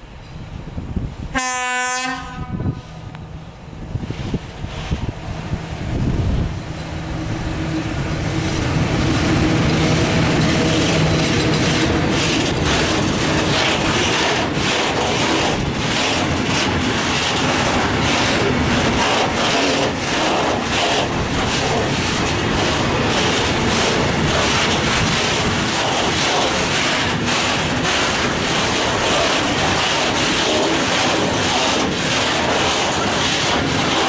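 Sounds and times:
electric locomotive humming: 0:00.0 - 0:34.0
wheels clacking over rail joints: 0:06.8 - 0:34.0.

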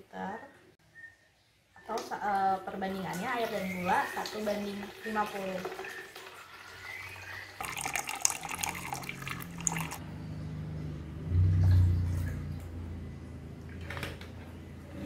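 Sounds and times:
water pouring into plastic pitcher: 0:03.4 - 0:10.0
low hum: 0:09.4 - 0:13.8.

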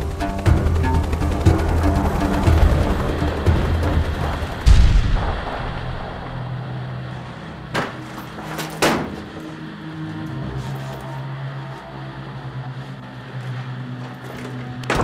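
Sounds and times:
low steady drone: 0:00.0 - 0:15.0
deep boom: 0:04.6 - 0:06.7.

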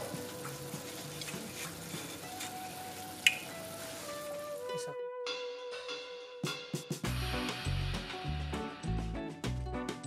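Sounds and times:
music with pulsing bass: 0:07.1 - 0:10.0.

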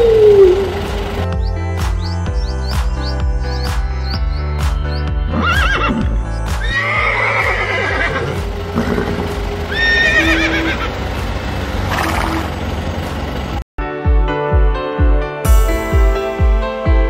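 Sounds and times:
background music with beat: 0:00.9 - 0:07.0, 0:13.1 - 0:17.0
horse whinnying: 0:05.3 - 0:10.9.

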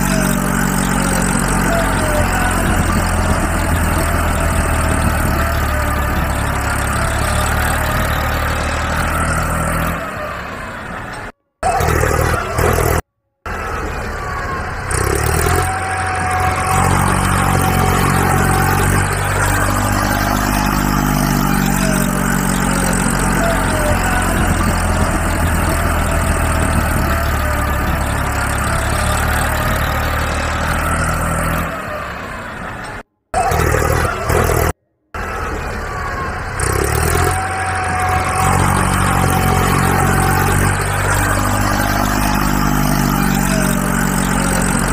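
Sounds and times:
heavy vehicle engine revving: 0:00.0 - 0:44.9.

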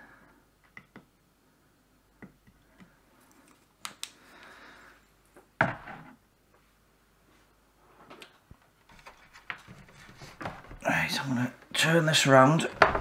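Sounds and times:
soft rustle of handling: 0:06.5 - 0:10.8.

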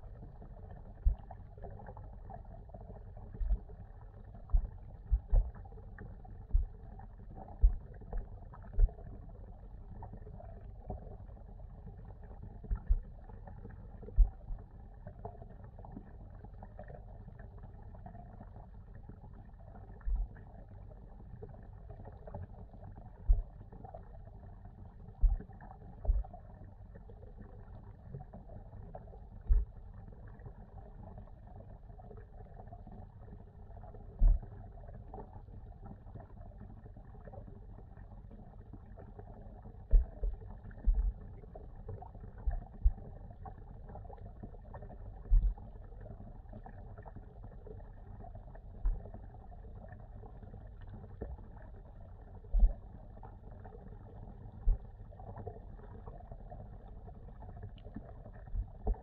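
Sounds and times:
muffled underwater water noise: 0:00.0 - 0:59.0
dull low thumps: 0:04.5 - 0:05.6, 0:06.4 - 0:06.8, 0:07.6 - 0:07.9, 0:23.3 - 0:23.5, 0:26.1 - 0:26.3, 0:29.5 - 0:29.7, 0:39.9 - 0:41.2, 0:45.3 - 0:45.6.

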